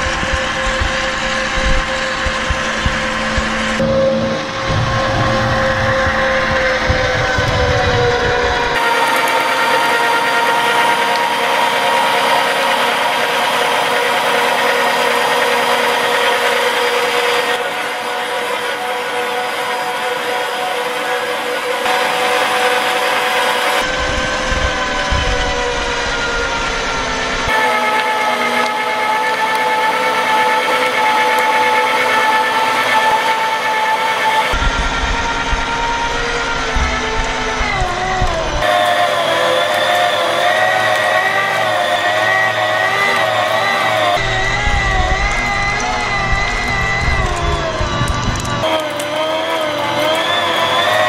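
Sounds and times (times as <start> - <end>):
low rumble: 0.0 - 8.8, 34.6 - 38.6, 44.2 - 48.6
meat grinder motor running: 0.0 - 51.0.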